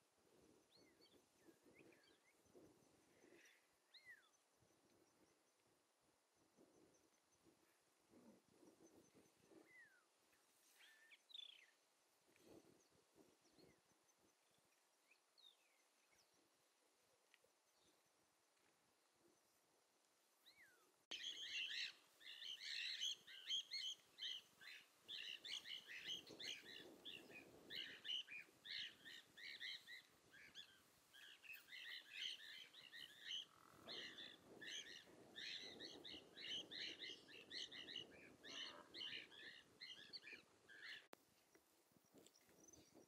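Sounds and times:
small birds chirping: 0.0 - 5.7, 6.4 - 18.7, 20.4 - 43.0
soft low rustle: 6.4 - 15.8.

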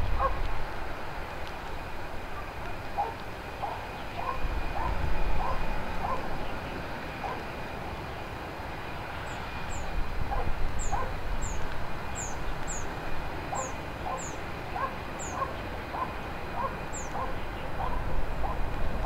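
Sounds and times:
jet engines rumbling on takeoff: 0.0 - 19.0
small birds chirping: 10.8 - 18.6.

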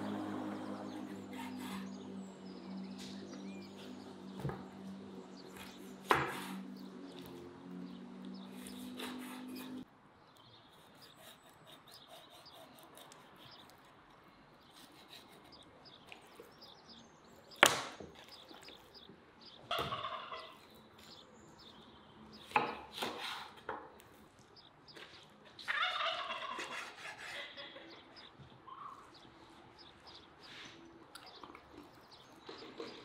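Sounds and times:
knife chopping on wooden board: 5.6 - 6.6, 22.4 - 23.9
poultry calling: 19.6 - 20.7, 25.5 - 29.2.

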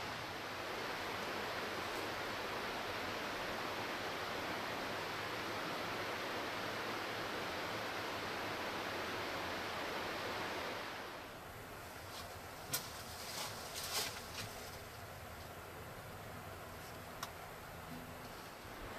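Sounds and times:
steady rushing noise: 0.0 - 14.7.

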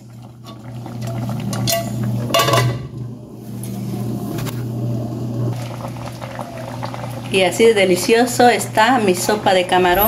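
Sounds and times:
soup boiling: 0.0 - 9.9
pot lid clattering on metal rim: 1.5 - 2.8.

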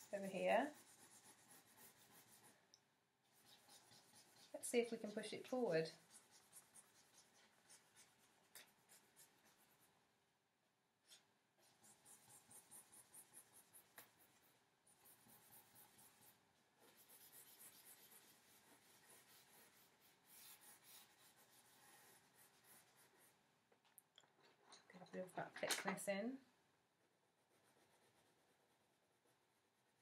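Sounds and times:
charcoal scratching on paper: 0.0 - 2.6, 3.2 - 10.0, 11.0 - 23.4, 27.3 - 30.0.

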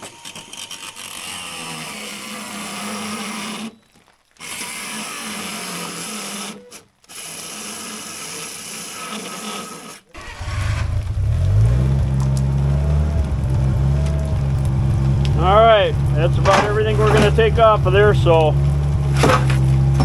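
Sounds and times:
cordless drill whirring: 0.0 - 3.8, 4.4 - 10.9
loader engine revving: 10.1 - 20.0.

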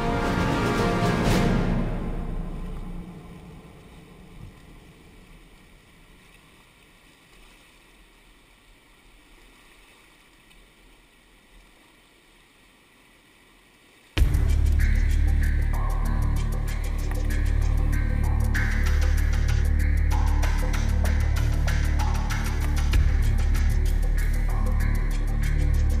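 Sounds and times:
music: 0.0 - 4.6, 14.2 - 26.0.

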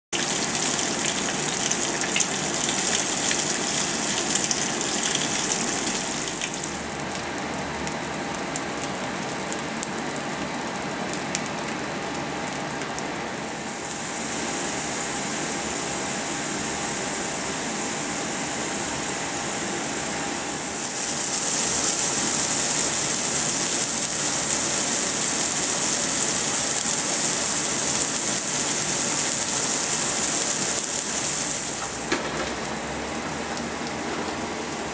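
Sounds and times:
food sizzling in a frying pan: 0.2 - 7.0, 20.6 - 32.4.

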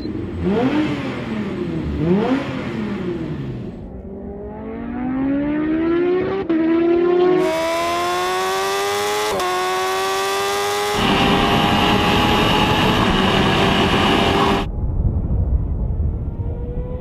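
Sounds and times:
engine revving high: 0.0 - 14.7
wind rushing: 10.9 - 17.0.

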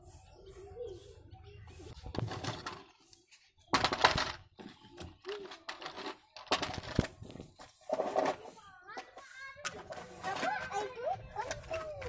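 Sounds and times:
plastic toy truck clattering: 3.7 - 7.3, 9.0 - 12.0.

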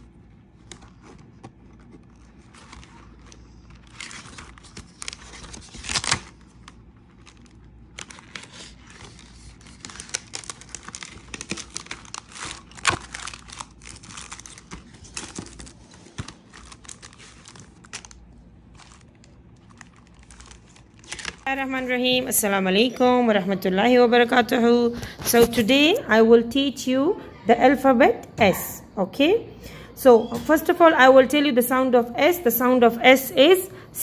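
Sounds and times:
paper rustling and crinkling: 0.0 - 22.3
pages turning: 0.6 - 21.4.

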